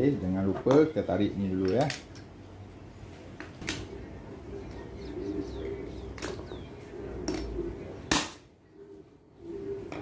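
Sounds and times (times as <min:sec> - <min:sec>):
birds calling: 0:03.8 - 0:10.0.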